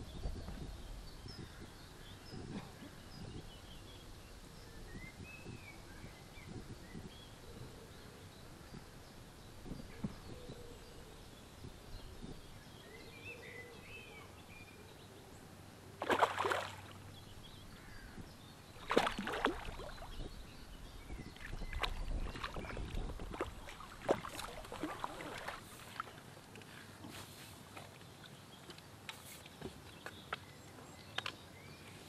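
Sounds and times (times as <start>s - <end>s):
fish splashing in water: 16.0s - 17.0s, 18.8s - 20.3s, 21.4s - 26.2s.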